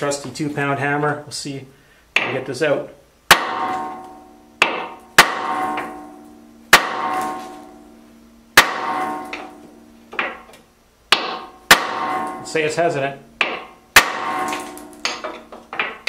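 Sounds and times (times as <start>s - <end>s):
hammer striking steel drift: 3.3s - 10.5s, 11.1s - 16.0s.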